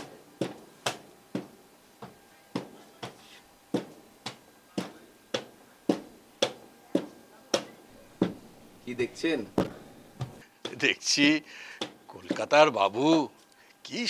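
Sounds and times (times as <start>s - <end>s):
hand stamp knocking on counter: 0.4s - 8.4s.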